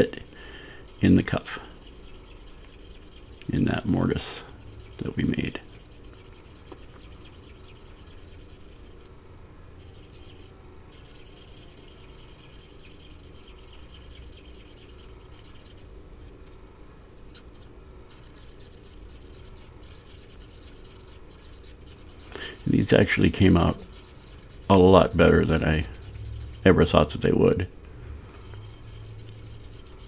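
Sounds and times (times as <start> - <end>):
file scraping steel: 0.0 - 9.1, 9.8 - 15.9, 17.3 - 26.7, 28.3 - 30.0.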